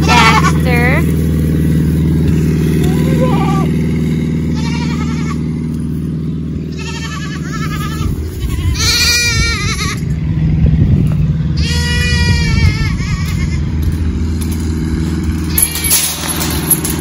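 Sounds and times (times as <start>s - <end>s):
goats bleating: 0.0s - 1.1s, 2.6s - 5.8s, 6.5s - 10.2s, 11.5s - 14.0s
low engine drone: 0.0s - 17.0s
rough low rumbling: 0.0s - 17.0s.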